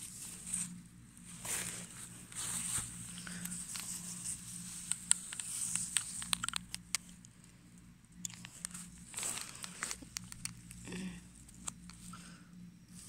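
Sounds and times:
grass rustling and crunching: 0.0 - 6.7, 8.4 - 10.8
low steady hum: 0.0 - 13.0
sharp little clicks and snaps: 4.7 - 7.4, 8.1 - 12.1.

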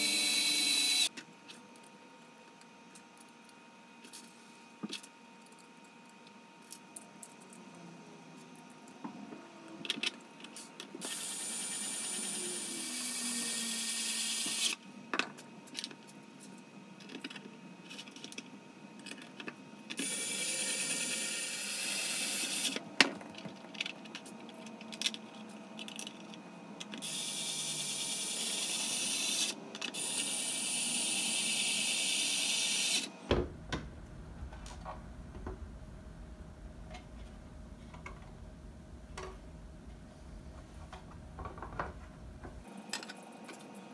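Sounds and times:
plastic parts clicking and knocking: 40.8 - 43.6.

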